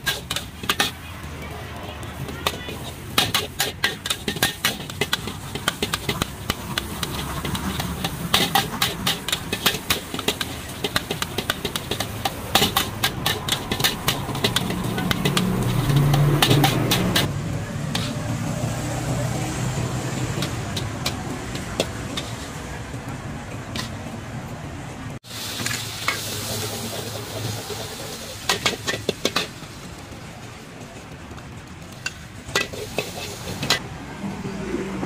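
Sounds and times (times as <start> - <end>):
metal spatula scraping a wok: 0.0 - 1.0, 2.2 - 17.3, 17.9 - 18.8, 19.5 - 22.7, 25.6 - 29.8, 32.0 - 33.8
oil sizzling in a wok: 0.0 - 1.0, 2.2 - 17.3, 25.2 - 30.7, 31.8 - 33.8.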